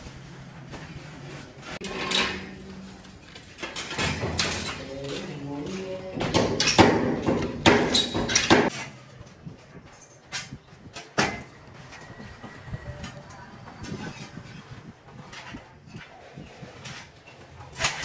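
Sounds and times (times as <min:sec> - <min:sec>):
steel scaffolding clanking: 0:01.7 - 0:12.1
sharp metal knocks: 0:06.2 - 0:08.7.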